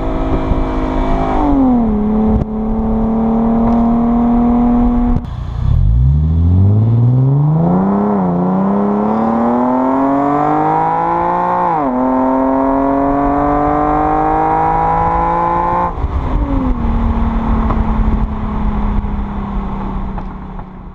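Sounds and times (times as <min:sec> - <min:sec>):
car exhaust accelerating: 0:00.0 - 0:20.9.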